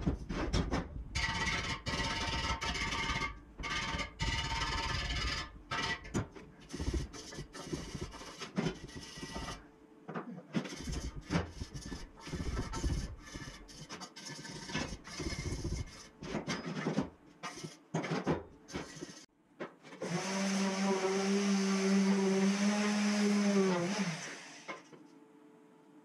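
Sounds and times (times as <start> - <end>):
scraping and rubbing on steel: 0.0 - 9.7, 10.4 - 19.3
power tool humming whine: 20.0 - 24.8.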